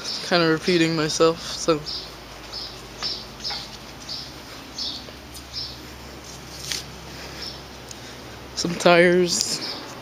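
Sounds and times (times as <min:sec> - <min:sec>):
bird chirping: 0:00.0 - 0:06.6, 0:07.2 - 0:08.2.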